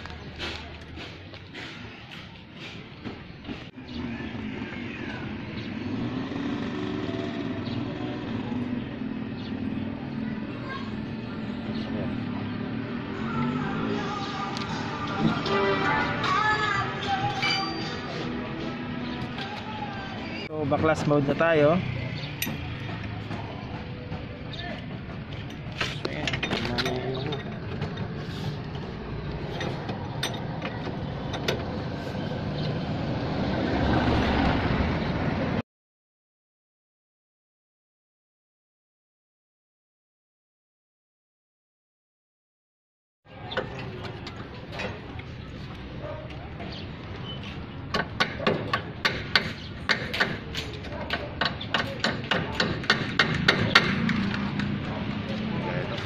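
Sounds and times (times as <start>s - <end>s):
background music: 13.4s - 19.0s
metal tools clinking: 25.3s - 28.2s, 29.4s - 31.6s.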